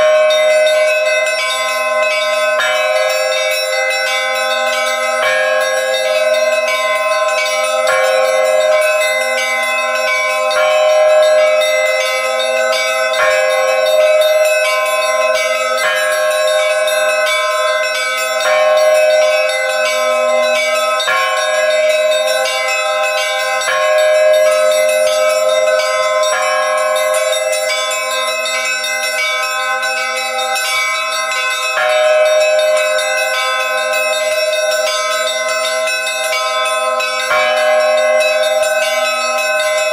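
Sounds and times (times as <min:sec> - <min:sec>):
bells ringing: 0:00.0 - 0:39.9.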